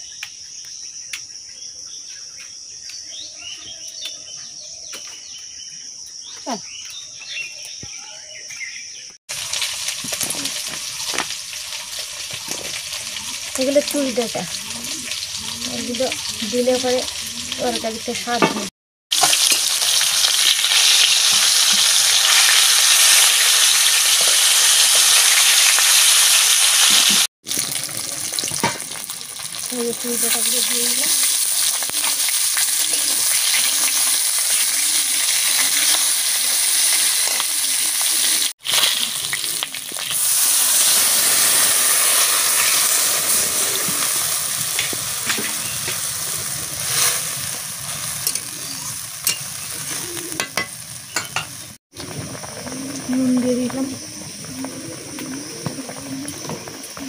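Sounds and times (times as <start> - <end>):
hot oil sizzling in a pan: 9.3 - 53.9.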